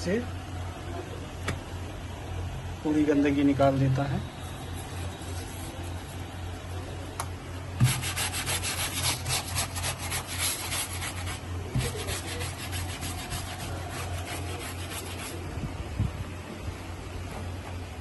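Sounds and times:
low steady hum: 0:00.0 - 0:18.0
toothbrush scrubbing wet fabric: 0:07.8 - 0:15.4.

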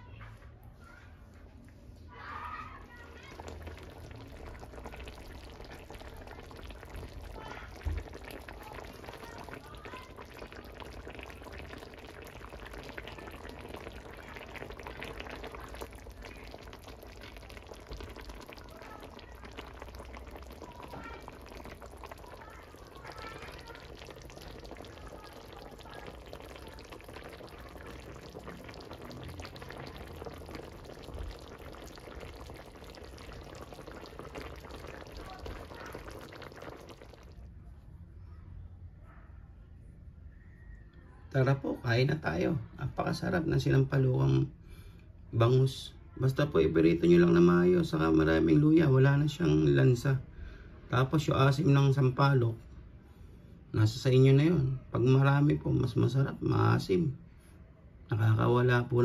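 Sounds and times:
broth bubbling in a wok: 0:02.0 - 0:37.6, 0:46.2 - 0:52.7.

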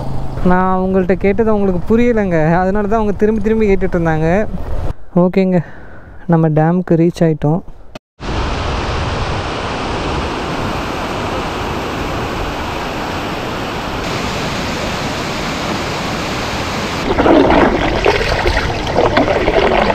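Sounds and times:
water rushing over weir: 0:08.2 - 0:19.9
water splashing and lapping: 0:10.8 - 0:19.9.

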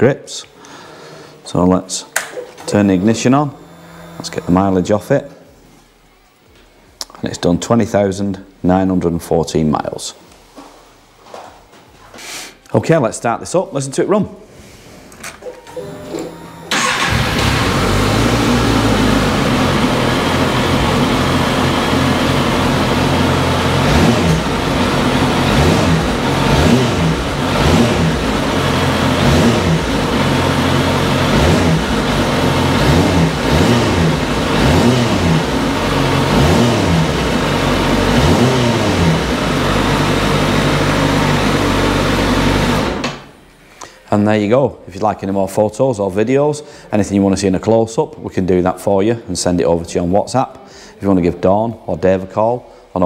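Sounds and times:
motorcycle engine idling and revving: 0:16.8 - 0:43.0.

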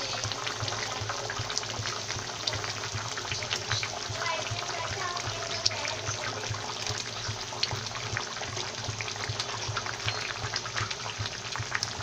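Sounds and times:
gravy bubbling and popping: 0:00.0 - 0:12.0.

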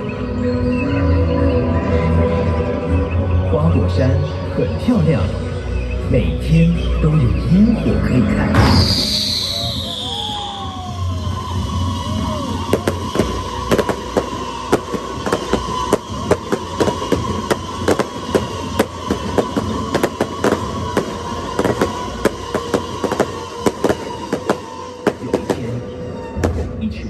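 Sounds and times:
fireworks pops and bangs: 0:08.6 - 0:26.8.

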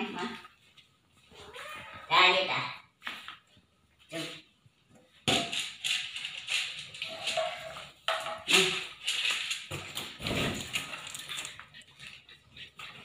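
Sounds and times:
cat meowing: 0:01.4 - 0:02.1.

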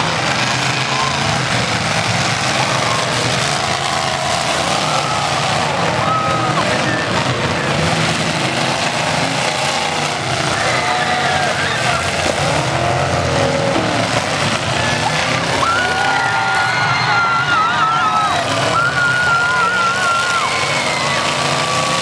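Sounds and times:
car engines revving: 0:00.0 - 0:22.0.

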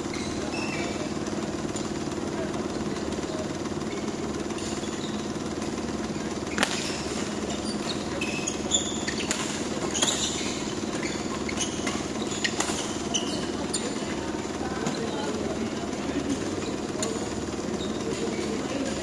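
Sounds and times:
shoe squeaks on court floor: 0:00.0 - 0:01.9, 0:02.7 - 0:19.0
steady mechanical hum: 0:00.0 - 0:19.0
racket striking shuttlecock: 0:06.5 - 0:13.9.

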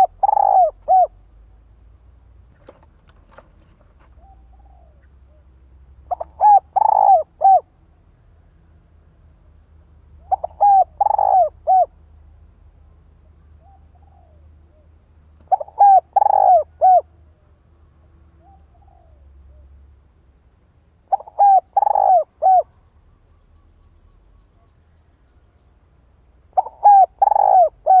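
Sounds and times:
dove cooing: 0:00.0 - 0:01.2, 0:04.0 - 0:07.7, 0:10.2 - 0:12.0, 0:13.6 - 0:17.1, 0:18.4 - 0:19.8, 0:21.1 - 0:22.8, 0:26.5 - 0:28.0.

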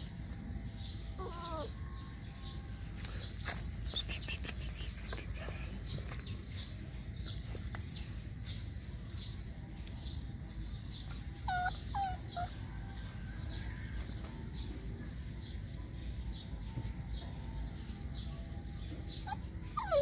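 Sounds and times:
puppy yelping: 0:01.2 - 0:01.8, 0:11.0 - 0:12.7, 0:19.2 - 0:20.0.

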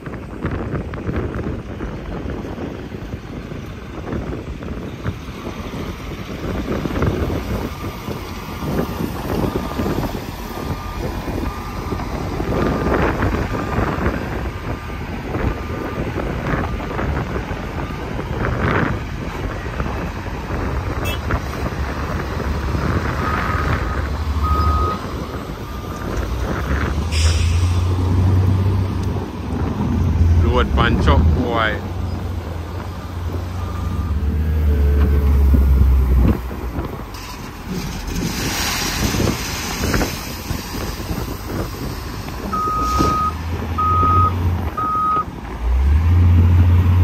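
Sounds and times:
diesel truck engine: 0:00.0 - 0:47.0
backup alarm beeping: 0:23.2 - 0:26.1, 0:42.5 - 0:45.3.

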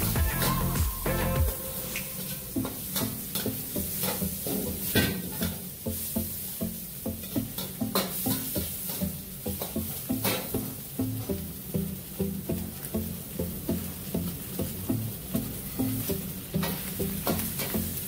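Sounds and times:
frying sizzle: 0:00.0 - 0:18.0.

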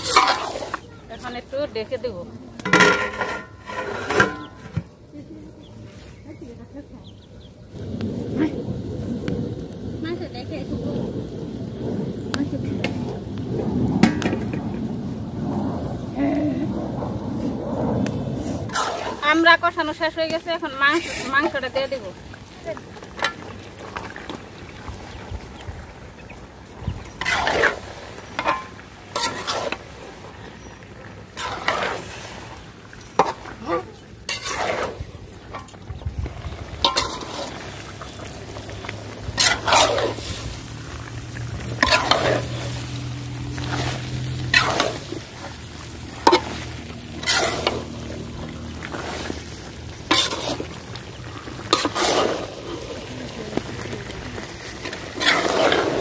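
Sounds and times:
metal ladle scraping a pot: 0:00.0 - 0:00.8, 0:02.6 - 0:04.8, 0:18.7 - 0:19.5, 0:27.2 - 0:29.9, 0:31.3 - 0:32.3, 0:34.3 - 0:35.8, 0:36.8 - 0:38.1, 0:39.3 - 0:40.6, 0:41.6 - 0:43.0, 0:43.6 - 0:48.2, 0:48.8 - 0:53.1, 0:54.7 - 0:56.0
food sizzling in a pot: 0:00.0 - 0:02.0, 0:17.4 - 0:56.0.

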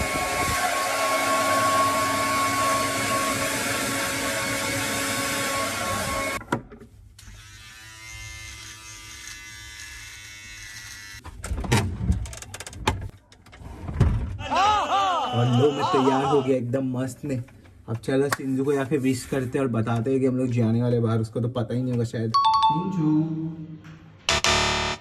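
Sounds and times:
hair dryer blowing: 0:00.0 - 0:06.4
beard trimmer buzzing: 0:07.2 - 0:11.2, 0:24.3 - 0:25.0.

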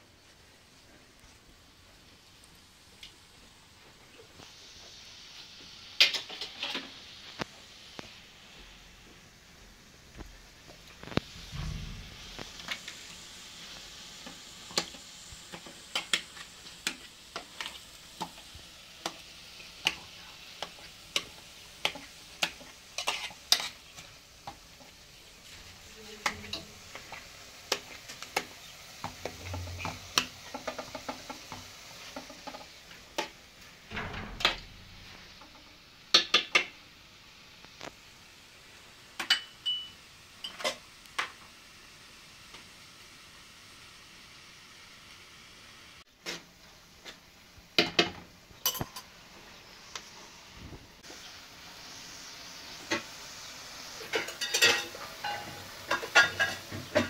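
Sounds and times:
faint sizzle: 0:00.0 - 0:57.0
utensils clinking on cookware: 0:39.2 - 0:40.8, 0:47.8 - 0:49.1, 0:54.0 - 0:57.0.

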